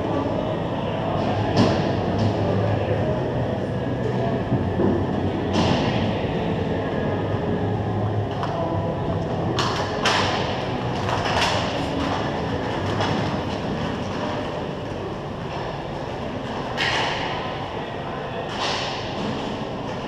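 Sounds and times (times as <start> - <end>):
skates rumbling on ice: 1.1 - 17.5
hockey sticks and puck clacking: 1.2 - 2.7, 8.3 - 17.6, 18.4 - 20.0.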